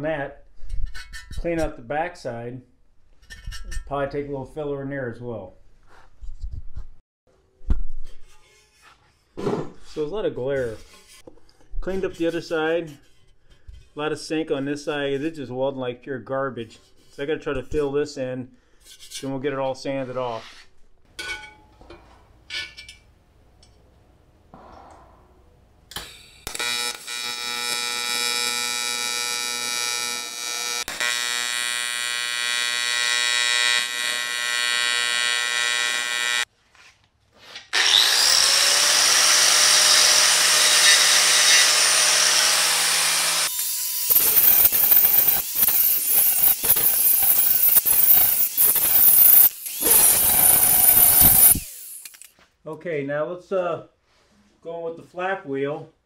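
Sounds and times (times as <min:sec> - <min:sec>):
welding arc buzzing: 0:25.9 - 0:36.5, 0:42.6 - 0:52.3
power tool running: 0:26.0 - 0:36.4, 0:37.8 - 0:52.3.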